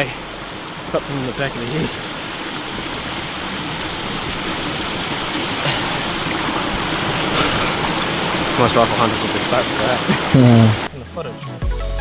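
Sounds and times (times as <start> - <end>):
stream water rushing: 0.0 - 11.6.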